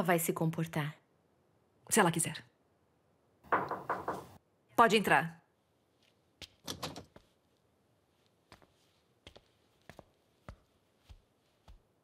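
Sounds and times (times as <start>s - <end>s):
footsteps on hard floor: 8.2s - 12.0s.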